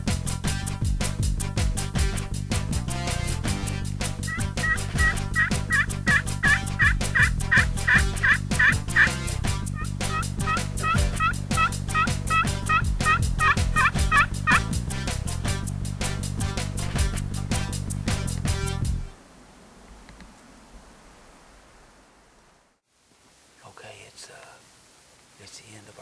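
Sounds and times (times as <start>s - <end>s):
background music with steady beat: 0.0s - 19.2s
turkey calls: 4.2s - 14.7s.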